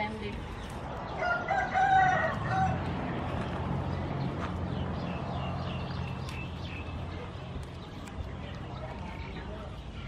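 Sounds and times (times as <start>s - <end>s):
rooster crowing: 1.2s - 2.9s.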